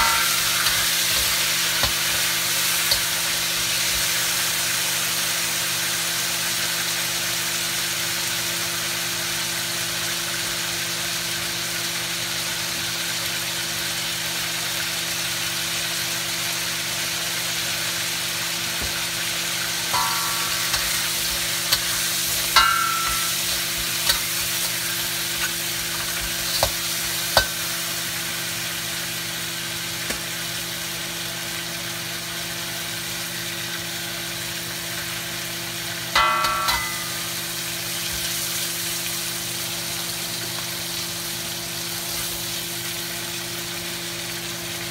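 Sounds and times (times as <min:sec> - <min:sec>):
metal spatula scraping wok: 0:00.0 - 0:04.2, 0:19.9 - 0:27.8
crabs sizzling in hot oil: 0:00.0 - 0:44.9.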